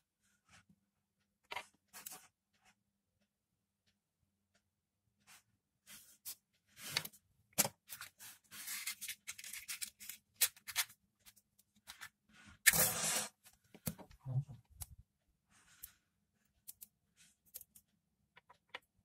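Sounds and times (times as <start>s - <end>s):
clicks and rustles of wire: 15.7s - 19.0s.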